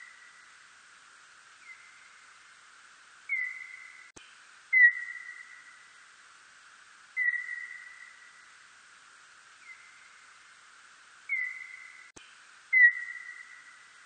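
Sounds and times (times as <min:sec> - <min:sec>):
faint hiss: 0:00.0 - 0:14.0
slowed bat calls: 0:01.5 - 0:02.4, 0:03.2 - 0:04.1, 0:04.7 - 0:06.1, 0:07.1 - 0:08.6, 0:09.5 - 0:10.5, 0:11.2 - 0:12.1, 0:12.7 - 0:14.0.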